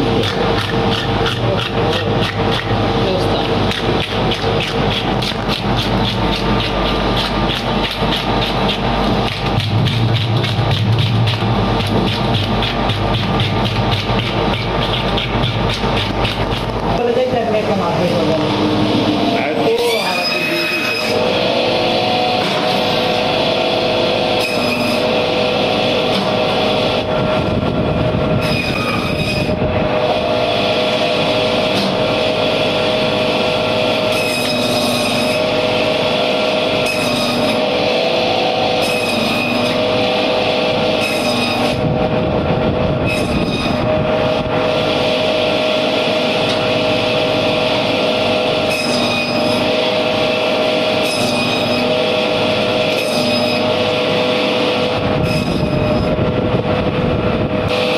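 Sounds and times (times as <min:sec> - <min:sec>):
band saw whining: 0:00.0 - 0:57.9
saw blade squealing through fish: 0:19.7 - 0:21.2, 0:24.4 - 0:25.1, 0:28.4 - 0:29.5, 0:34.1 - 0:35.4, 0:48.7 - 0:49.6.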